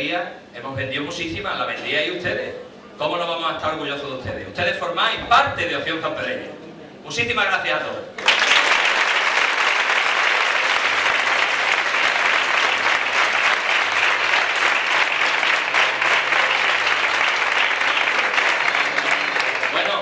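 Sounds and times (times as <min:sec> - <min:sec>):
audience applauding: 0:08.2 - 0:20.0.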